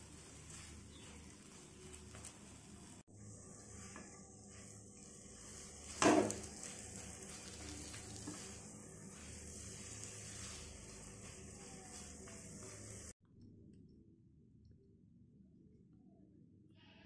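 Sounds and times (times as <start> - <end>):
faint steady sizzle: 0.0 - 13.2
spatula scraping in a pan: 0.0 - 13.2.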